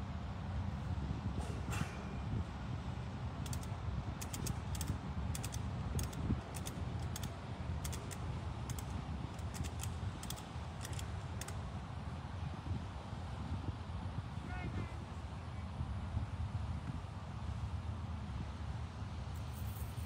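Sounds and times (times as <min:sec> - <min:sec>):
steady low rumble: 0:00.0 - 0:20.0
sharp clicks: 0:03.4 - 0:11.6.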